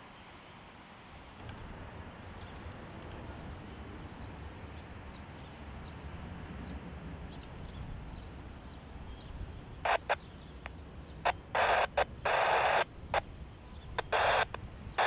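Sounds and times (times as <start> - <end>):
radio static bursts: 9.8 - 10.6, 11.2 - 13.3, 13.9 - 15.0.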